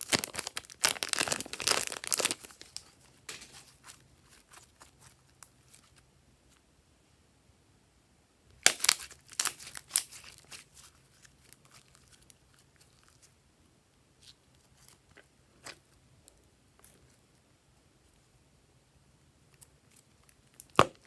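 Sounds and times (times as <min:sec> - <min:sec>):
slime crackling and popping: 0:00.0 - 0:02.9, 0:08.6 - 0:13.3, 0:20.2 - 0:21.0.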